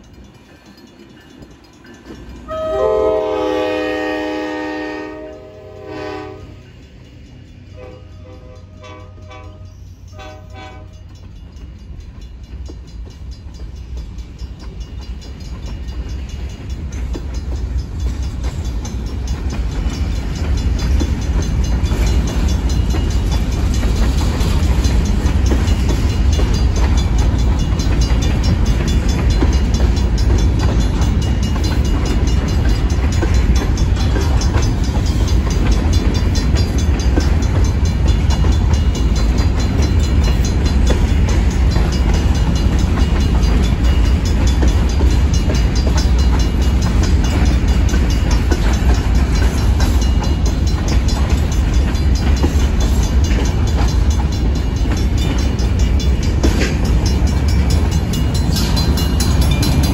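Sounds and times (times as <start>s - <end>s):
low rumble of train: 0.0s - 59.9s
train horn: 2.4s - 6.8s, 7.7s - 11.1s
train wheels clattering over rail joints: 10.1s - 59.9s.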